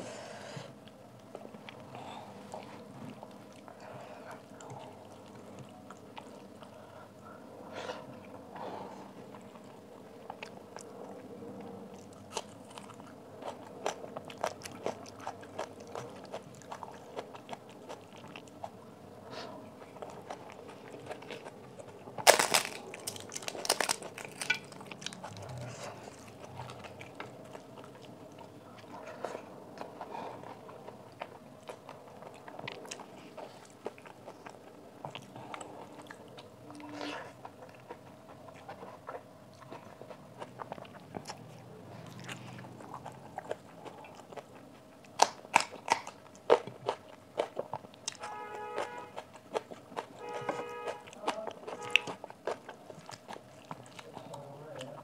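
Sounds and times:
chewing and wet mouth sounds: 0.5s - 55.0s
crunching of crisp papad: 20.1s - 28.1s.

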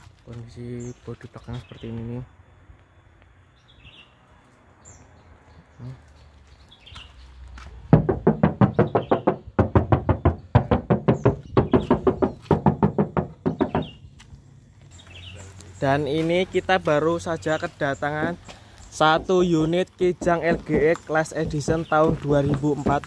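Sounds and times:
knuckles knocking on car panels: 7.9s - 14.0s, 19.2s - 23.0s.

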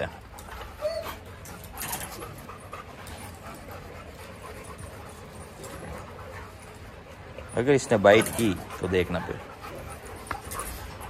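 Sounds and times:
dog panting: 0.0s - 11.0s.

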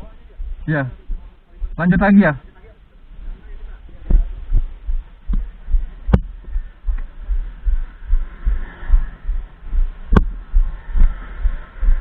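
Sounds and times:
motorcycle engine throbbing: 0.0s - 2.5s, 3.1s - 12.0s
sharp knocks: 6.1s - 7.1s, 10.1s - 10.6s.

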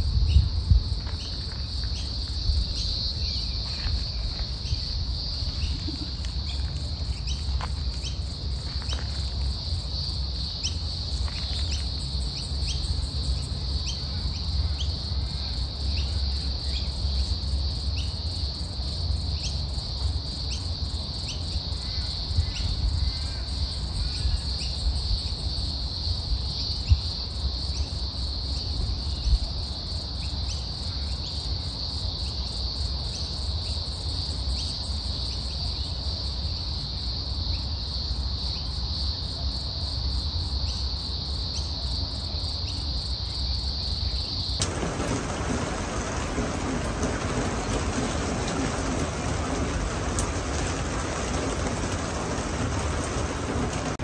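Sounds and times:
insects droning in chorus: 0.0s - 54.0s
low uneven rumble: 44.6s - 54.0s.

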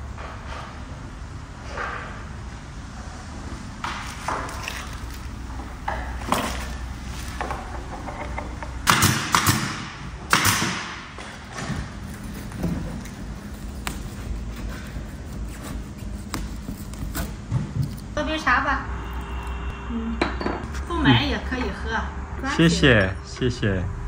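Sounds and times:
workshop knocks and bumps: 5.5s - 15.0s, 16.3s - 18.2s.

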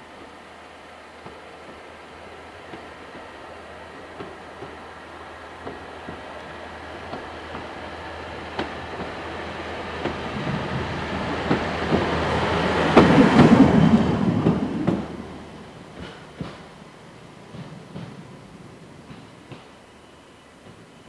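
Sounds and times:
railcar running past: 0.0s - 21.0s
wheels clicking over rail joints: 5.5s - 18.4s.

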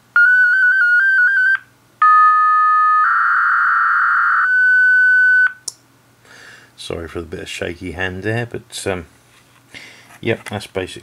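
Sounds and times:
digital mode audio tones: 0.2s - 5.6s.

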